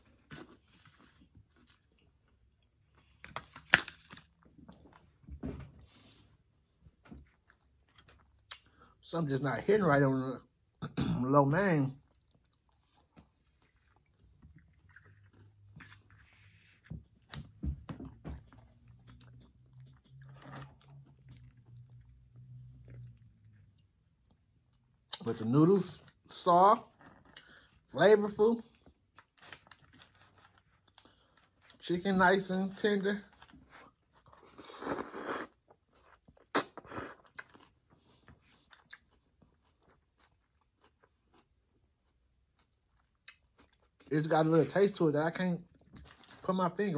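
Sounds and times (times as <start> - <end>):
person chewing noodles: 0.0 - 9.0, 12.0 - 27.9, 28.6 - 31.8, 33.2 - 44.2
person slurping noodles: 34.4 - 35.6
wet mouth clicks: 36.3 - 37.5.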